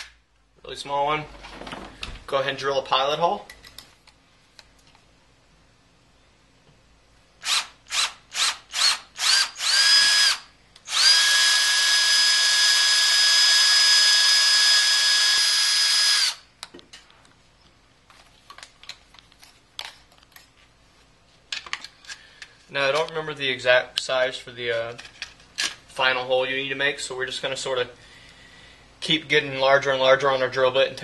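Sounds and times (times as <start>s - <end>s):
cordless drill drilling: 7.4s - 16.4s.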